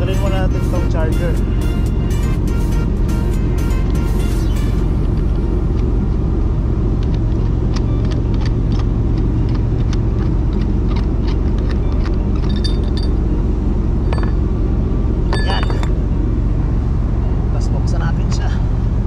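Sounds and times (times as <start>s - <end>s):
low machinery rumble: 0.0s - 19.0s
metal cap clicks and clinks: 12.4s - 13.2s, 15.3s - 16.0s.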